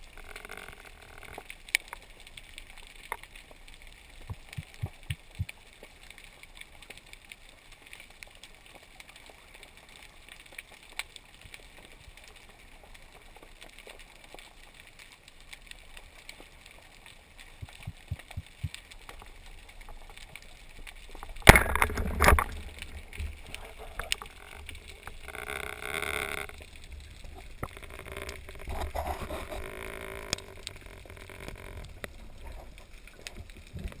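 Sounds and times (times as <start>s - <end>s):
small underwater clicks: 0.0s - 34.0s
bubbling and water rushing: 17.3s - 34.0s.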